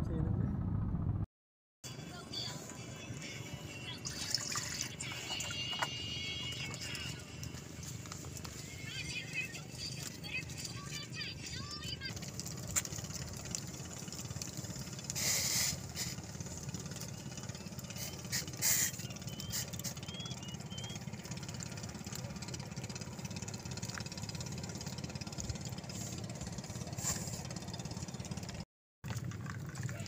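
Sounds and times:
low engine-like drone: 0.0 - 1.3, 1.9 - 28.6
hissy bursts: 15.1 - 16.2, 17.9 - 19.9
faint bird chirps: 17.8 - 21.0.

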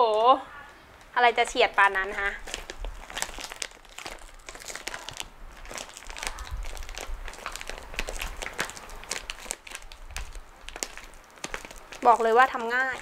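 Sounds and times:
plastic bag crinkling: 1.3 - 13.0.

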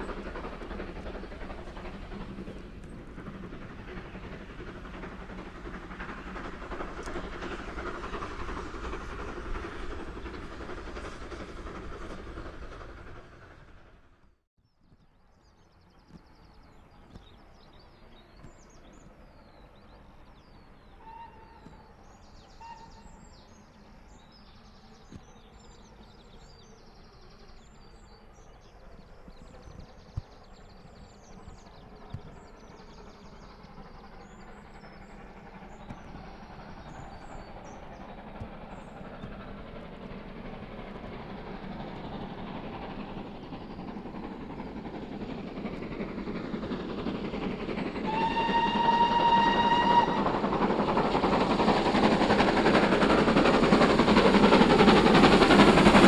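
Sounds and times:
steam locomotive rumble: 0.0 - 14.4, 15.4 - 56.0
birds chirping: 15.4 - 56.0.

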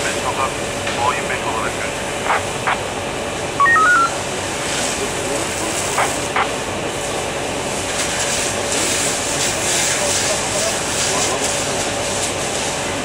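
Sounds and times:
machine drone with hiss: 0.0 - 13.0
short electronic beeps: 3.6 - 4.2.

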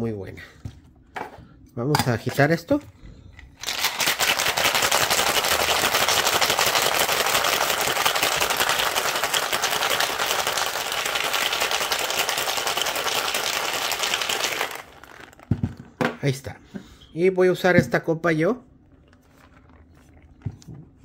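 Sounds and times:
ice rattling in cocktail shaker: 3.6 - 15.6.

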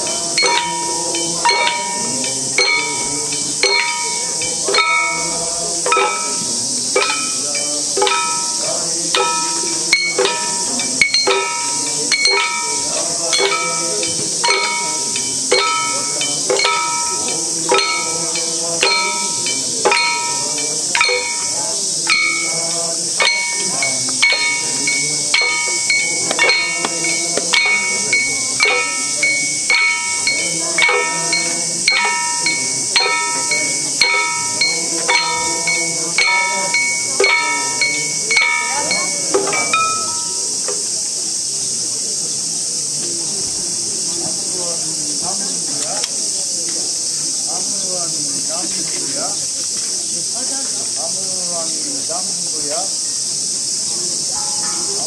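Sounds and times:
hand drums and bells beating: 0.0 - 41.5, 53.5 - 55.0
constant high hiss: 0.0 - 55.0.

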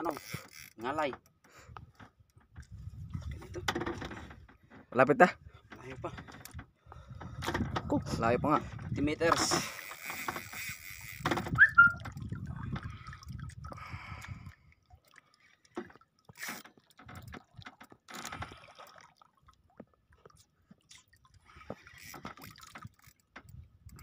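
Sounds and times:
water sloshing against boat: 0.0 - 24.0
brief squeak: 11.5 - 12.1.

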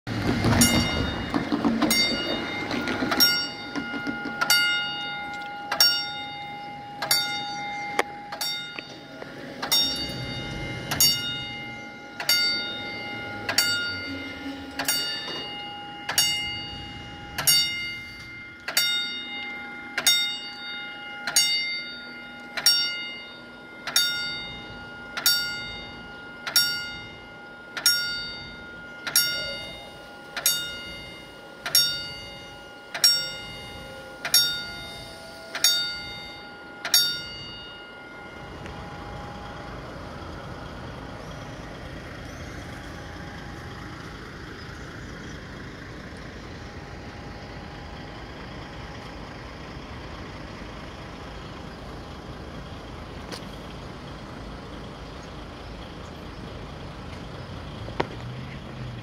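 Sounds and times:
low rumble: 0.1 - 19.9, 32.1 - 57.8
level-crossing warning bell: 0.1 - 59.0.

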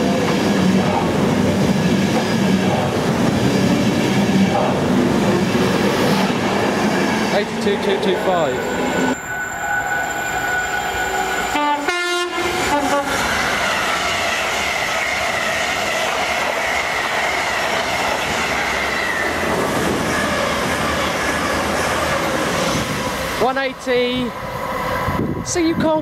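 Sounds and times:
train wheels rushing on rails: 0.0 - 26.0
train horn two-note blast: 10.6 - 13.2.

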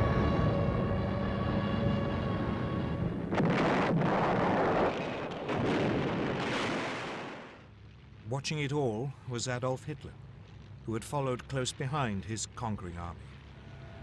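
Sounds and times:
diving aircraft whine: 0.0 - 5.7
bomb explosions: 3.2 - 7.7.

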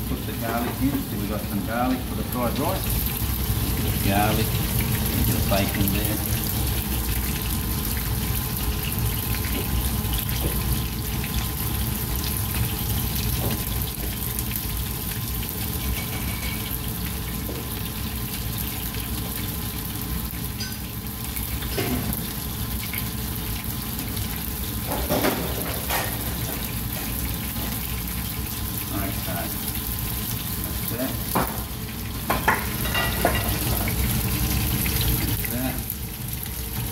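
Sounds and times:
fish sizzling in hot oil: 0.0 - 36.9
utensils knocking against pans: 32.2 - 33.9.

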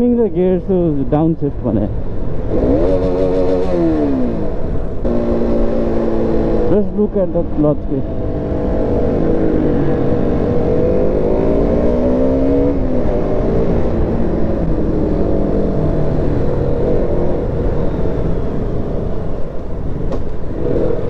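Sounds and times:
wind and road noise: 0.0 - 21.0
motorcycle engine revving: 2.4 - 18.6.

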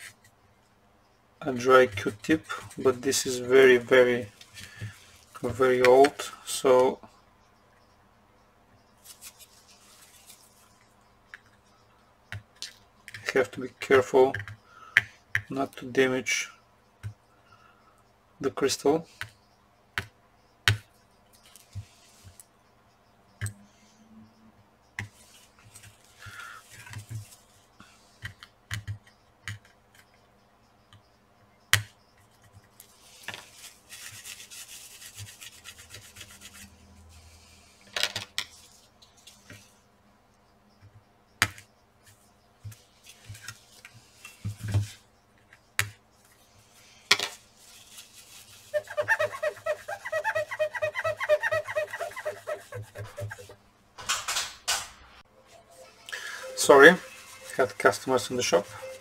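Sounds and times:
tools clicking and tapping: 14.3 - 15.5, 28.2 - 30.3
soft rubbing and scraping: 46.3 - 53.6.

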